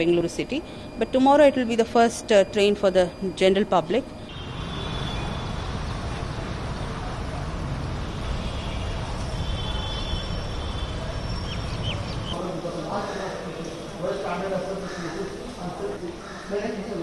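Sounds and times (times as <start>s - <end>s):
road traffic rumble: 4.2s - 17.0s.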